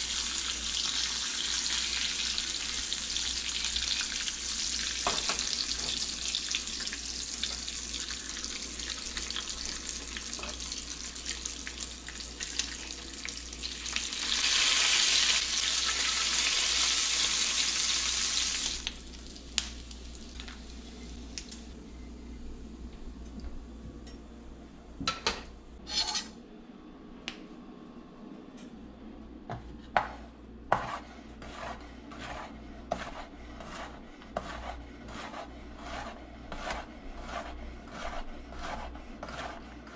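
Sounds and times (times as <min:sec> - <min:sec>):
bacon sizzling in a frying pan: 0:00.0 - 0:21.6
utensil stirring in a pan: 0:30.0 - 0:39.9.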